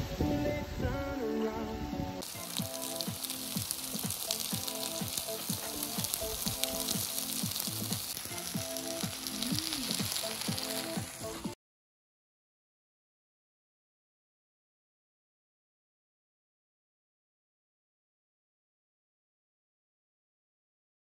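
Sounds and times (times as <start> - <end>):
food sizzling in a frying pan: 2.2 - 11.6.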